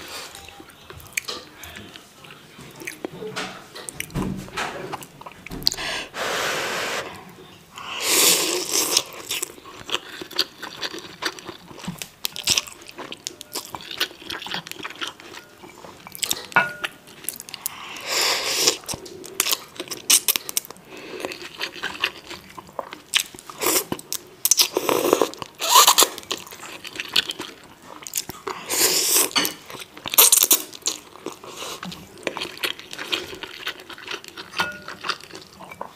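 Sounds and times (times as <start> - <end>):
wet chewing: 8.5 - 17.8, 18.6 - 35.9.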